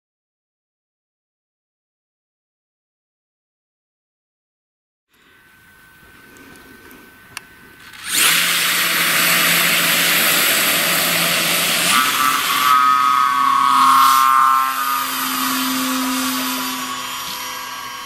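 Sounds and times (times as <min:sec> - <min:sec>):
electric motor whirring: 0:05.6 - 0:18.0.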